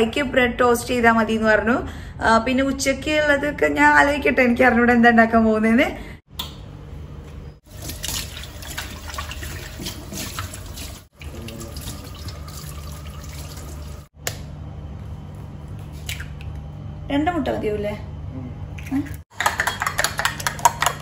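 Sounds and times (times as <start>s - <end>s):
tap water running into sink: 7.7s - 14.1s.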